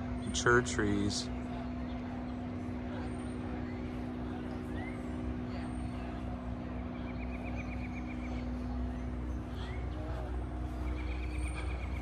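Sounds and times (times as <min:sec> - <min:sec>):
mechanical hum with low rumble: 0:00.0 - 0:12.0
bird trill: 0:06.9 - 0:12.0.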